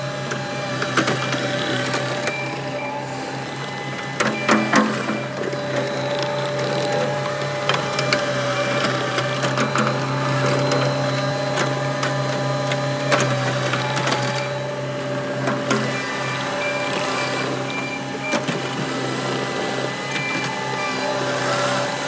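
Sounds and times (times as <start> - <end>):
diesel engine whining under load: 0.0 - 22.0.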